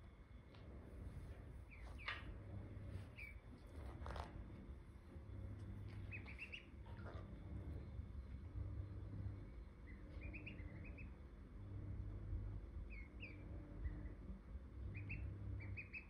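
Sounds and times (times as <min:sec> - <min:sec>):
faint low hum: 0:00.0 - 0:16.0
ducklings peeping: 0:01.6 - 0:04.1, 0:05.7 - 0:07.5, 0:09.3 - 0:11.2, 0:12.9 - 0:16.0.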